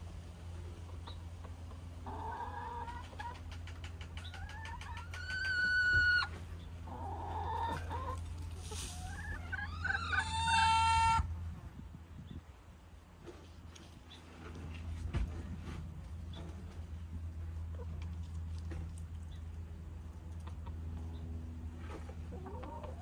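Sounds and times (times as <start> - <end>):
hens clucking: 0.4 - 11.4, 13.2 - 23.0
hen drawn-out rising calls: 2.0 - 8.2, 8.8 - 11.3.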